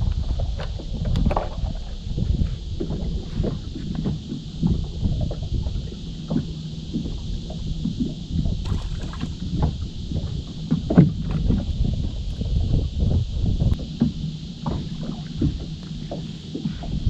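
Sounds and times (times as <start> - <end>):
wind and water rumbling: 0.0 - 17.0
small knocks on boat: 13.8 - 17.0.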